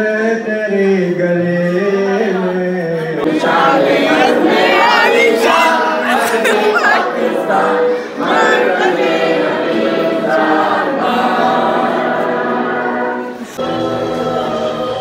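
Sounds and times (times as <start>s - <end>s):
choir singing long notes: 3.2s - 15.0s.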